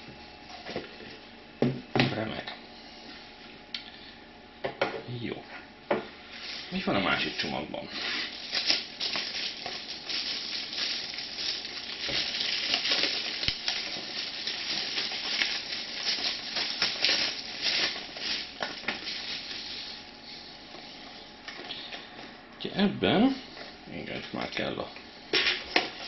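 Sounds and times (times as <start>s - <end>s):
packaging rustling and crackling: 8.0s - 20.1s.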